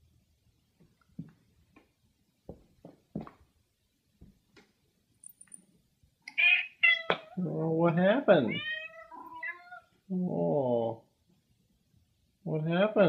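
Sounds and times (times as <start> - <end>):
faint taps: 0.8 - 1.9
cat crying out: 6.3 - 7.4, 8.5 - 9.9.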